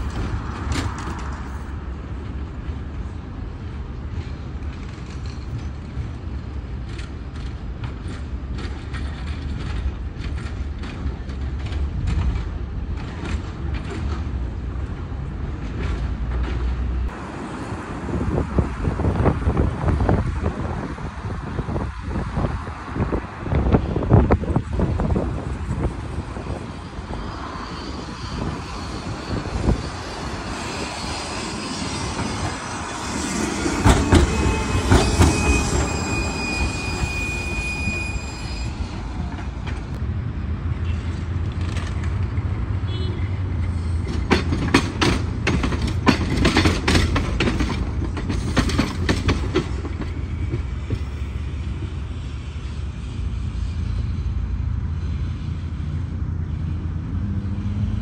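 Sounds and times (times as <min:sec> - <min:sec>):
tram wheels knocking on rail joints: 0:00.0 - 0:01.6, 0:04.1 - 0:17.0, 0:28.4 - 0:36.5, 0:43.9 - 0:51.2
street traffic: 0:00.0 - 0:58.0
high wheel squeal: 0:26.4 - 0:40.0.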